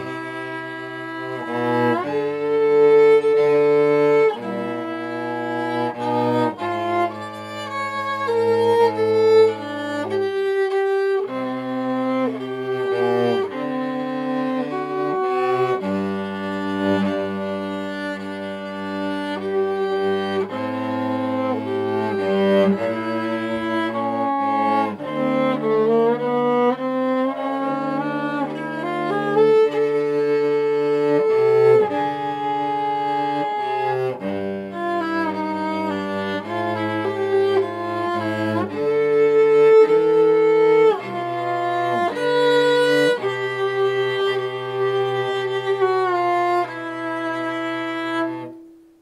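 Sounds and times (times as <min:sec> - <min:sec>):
cello playing low line: 0:00.0 - 0:49.0
violin melody: 0:00.0 - 0:49.0.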